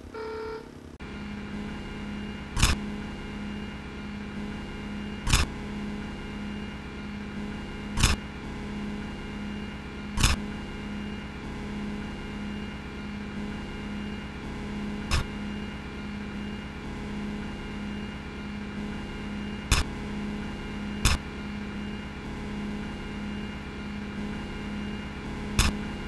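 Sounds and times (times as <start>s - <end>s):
low electrical hum: 0.0s - 26.0s
short sharp clicks: 2.6s - 2.8s, 8.0s - 8.2s, 10.2s - 10.4s, 19.7s - 19.9s, 25.6s - 25.8s.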